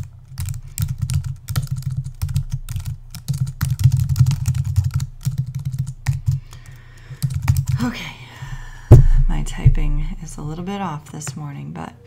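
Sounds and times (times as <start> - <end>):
keyboard typing: 0.0 - 7.8.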